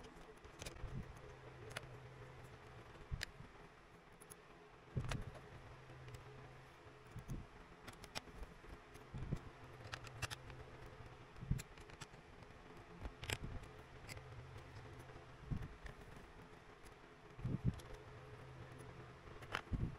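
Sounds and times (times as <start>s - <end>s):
steady low hum: 0.0s - 19.9s
small screwdriver clicks and scrapes: 9.3s - 10.6s.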